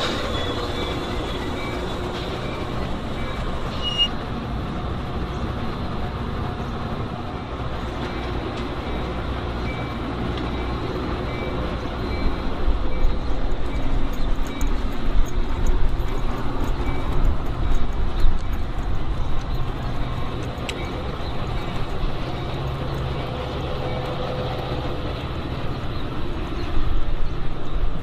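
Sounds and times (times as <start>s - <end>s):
train rumbling on tracks: 0.0s - 28.0s.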